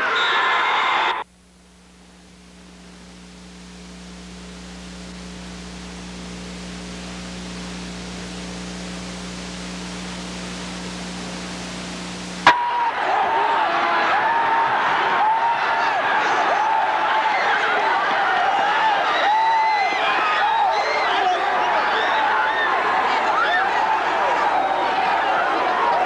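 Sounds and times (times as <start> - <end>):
tape hiss: 0.6 - 26.0
low electrical hum: 1.2 - 20.0.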